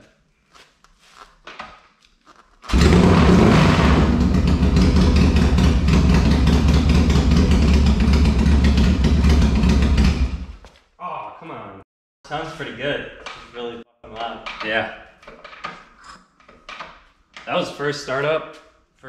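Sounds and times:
motorcycle engine kick-starting and running: 2.7s - 10.6s.

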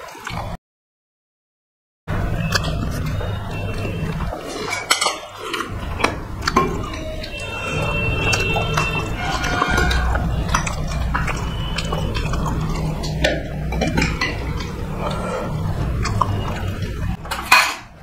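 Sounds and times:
low hum: 2.1s - 18.0s
chewing: 2.3s - 17.7s
loud rush of noise: 5.7s - 17.6s.

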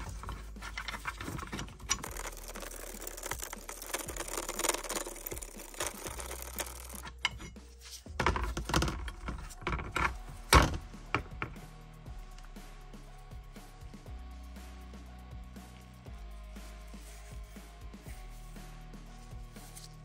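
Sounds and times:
pipe wrench jaw rattling and scraping: 0.0s - 10.4s.

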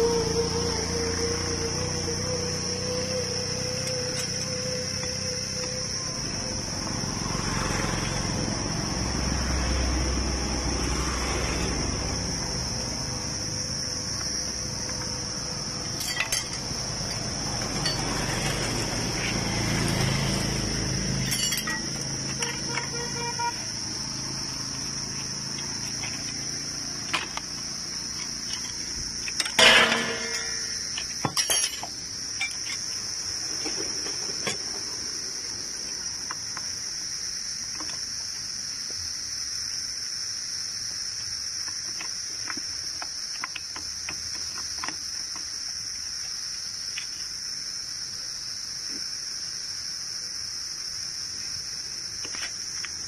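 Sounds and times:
insect drone: 0.0s - 53.0s
metal tools clinking: 15.8s - 18.8s, 21.2s - 22.9s, 28.1s - 32.9s.

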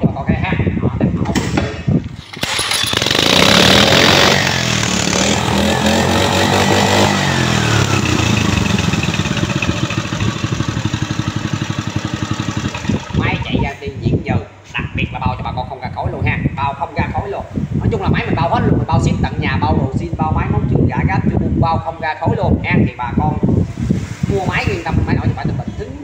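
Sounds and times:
water pump engine running: 2.2s - 13.7s.

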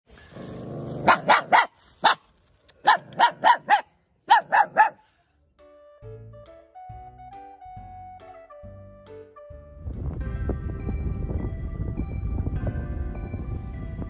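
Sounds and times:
puppy barking: 1.0s - 2.2s, 2.8s - 5.0s
soft music: 4.6s - 14.0s.

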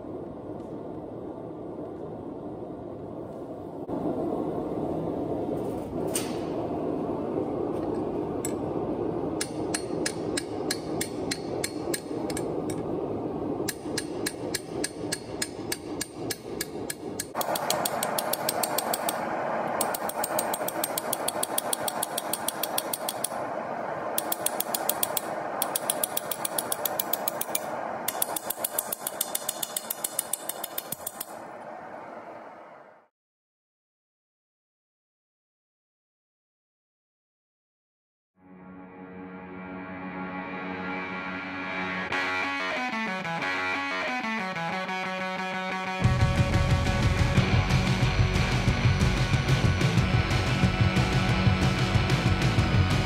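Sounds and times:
steady rushing noise: 0.0s - 33.1s, 40.8s - 53.0s
hammer striking steel on anvil: 9.4s - 12.8s, 13.6s - 19.2s, 19.8s - 23.4s, 24.2s - 31.4s.

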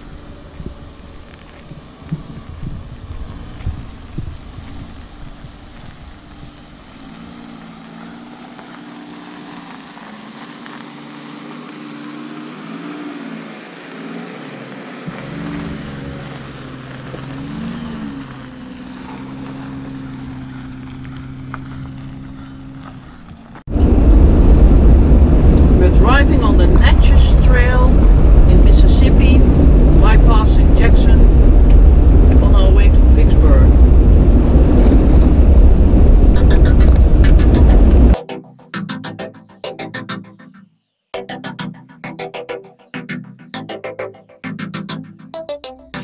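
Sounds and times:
wind rumbling on microphone: 0.0s - 10.6s, 15.1s - 38.2s
van engine running: 0.0s - 38.2s.

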